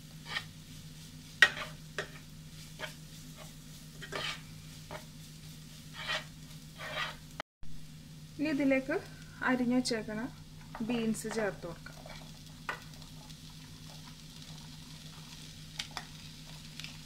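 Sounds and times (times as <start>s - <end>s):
wooden spatula scraping a pan: 0.0s - 7.3s
steady low hum: 0.0s - 17.0s.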